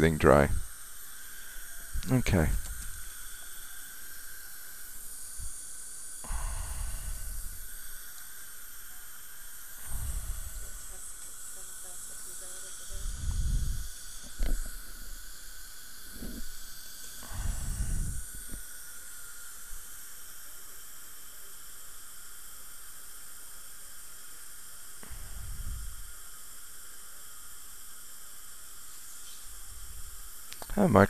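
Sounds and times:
saliva ejector suction hiss: 0:00.3 - 0:20.4, 0:21.1 - 0:31.0
dull low thumps: 0:13.0 - 0:14.7, 0:17.2 - 0:18.6, 0:25.1 - 0:26.1.

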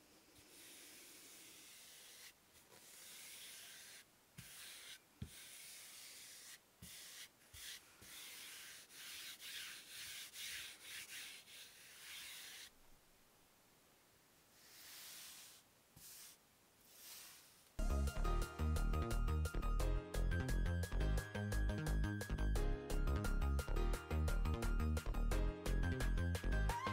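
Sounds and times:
palm rubbing fabric: 0:00.2 - 0:12.8, 0:14.5 - 0:17.7.

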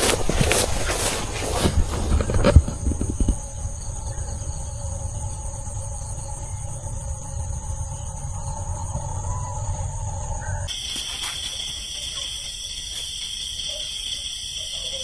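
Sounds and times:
footsteps through dry stubble: 0:00.0 - 0:02.4, 0:10.7 - 0:15.0
insect chorus chirring: 0:00.0 - 0:15.0.

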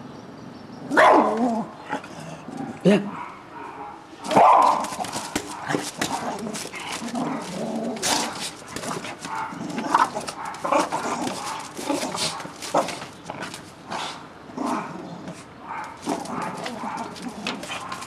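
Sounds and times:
dog barking: 0:00.9 - 0:01.4, 0:03.1 - 0:05.8, 0:09.3 - 0:09.6, 0:15.7 - 0:17.2.

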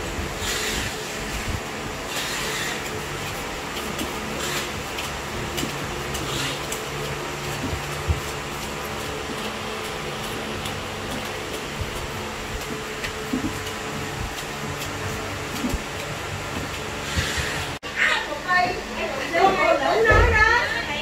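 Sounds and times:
mechanical hum: 0:00.0 - 0:21.0
knife scraping coconut husk: 0:02.0 - 0:17.8.

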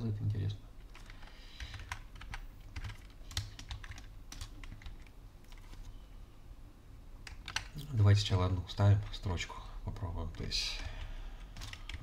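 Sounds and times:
keyboard typing: 0:00.8 - 0:05.8, 0:07.2 - 0:07.9, 0:10.0 - 0:12.0.

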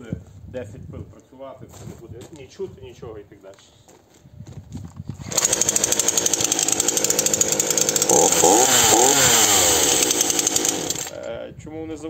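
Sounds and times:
chainsaw starting and revving: 0:05.2 - 0:11.3.

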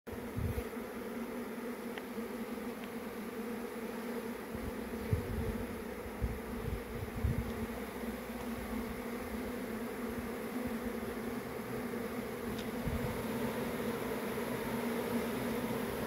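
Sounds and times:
bee swarm buzzing: 0:00.1 - 0:16.0.

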